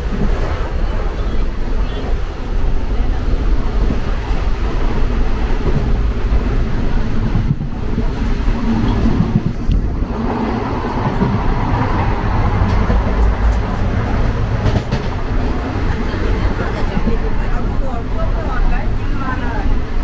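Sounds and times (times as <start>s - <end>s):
train coach rumbling and rattling: 0.0s - 20.0s.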